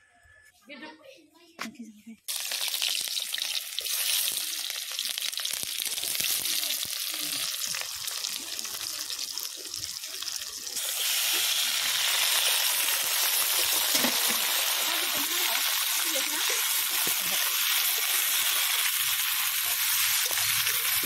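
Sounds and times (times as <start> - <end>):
onions sizzling in hot oil: 2.3 - 21.0.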